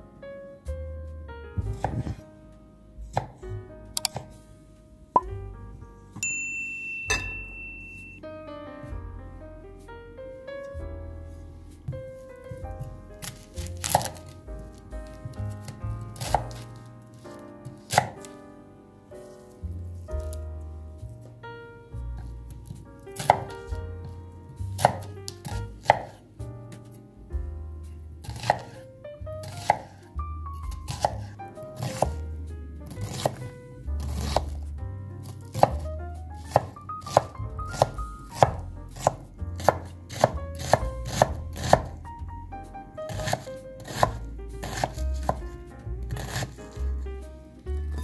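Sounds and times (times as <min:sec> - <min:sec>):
knife chopping on wooden board: 0:01.6 - 0:02.2, 0:13.2 - 0:14.4, 0:15.2 - 0:16.7, 0:17.7 - 0:18.2, 0:22.6 - 0:26.2, 0:28.2 - 0:28.8, 0:29.4 - 0:30.0, 0:30.7 - 0:32.2, 0:32.9 - 0:34.7, 0:35.3 - 0:42.0, 0:43.1 - 0:45.5, 0:46.1 - 0:47.0.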